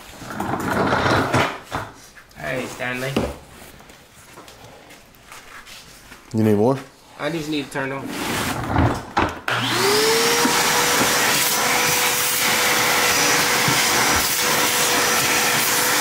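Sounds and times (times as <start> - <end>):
shop vacuum motor whining: 9.5 - 16.0.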